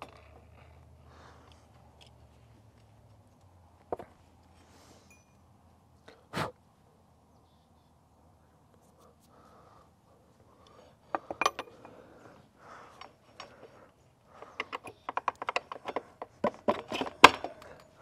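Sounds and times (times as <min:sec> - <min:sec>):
small metallic clicks: 0:12.7 - 0:18.0.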